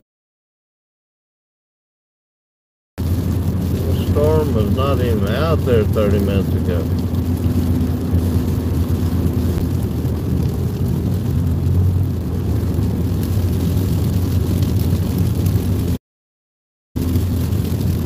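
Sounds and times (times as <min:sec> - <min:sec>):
car interior road and engine rumble: 0:03.0 - 0:16.0, 0:17.0 - 0:18.0.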